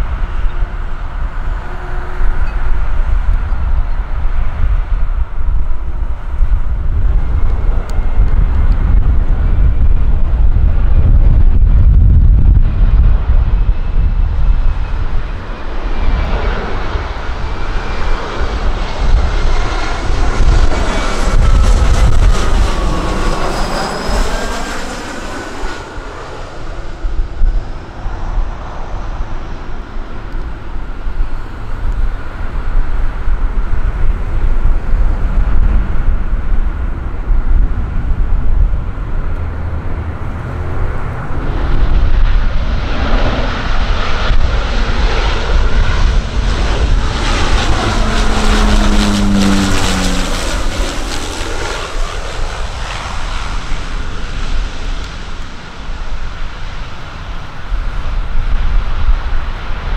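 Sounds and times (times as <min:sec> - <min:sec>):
jet engine whine and rumble: 0:00.0 - 0:59.9
turboprop propeller tones: 0:00.0 - 0:59.9
wind buffeting microphone: 0:00.0 - 0:59.9.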